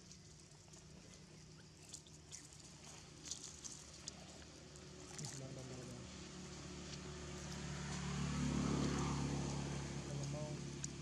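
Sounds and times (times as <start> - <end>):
vehicle engine passing: 5.0 - 11.0.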